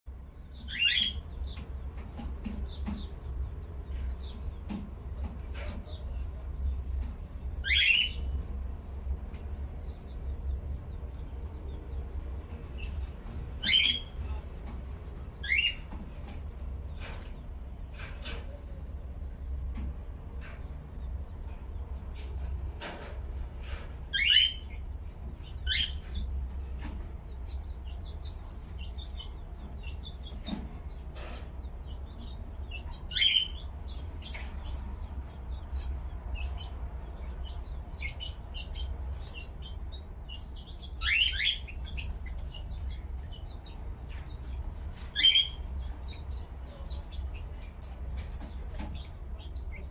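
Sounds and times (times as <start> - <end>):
pet birds chirping: 0.1 - 49.9
steady low hum: 0.1 - 49.9.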